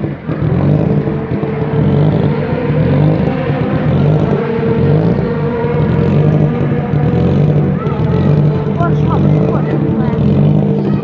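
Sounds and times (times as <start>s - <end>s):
car engine idling: 0.0s - 11.0s.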